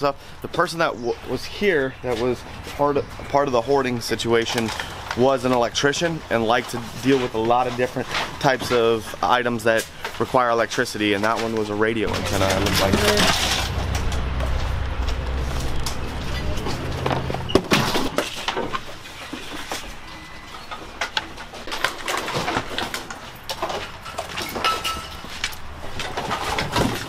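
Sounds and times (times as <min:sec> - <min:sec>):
junk knocking and clattering: 0:11.1 - 0:19.4, 0:20.7 - 0:27.0
low hum: 0:12.0 - 0:17.6.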